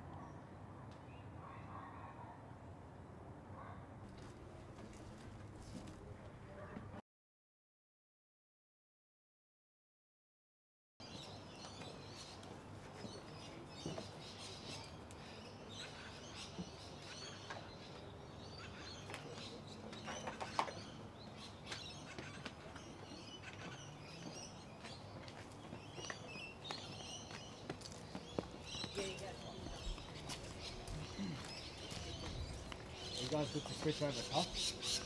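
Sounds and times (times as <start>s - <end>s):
small birds chirping: 11.0s - 35.0s.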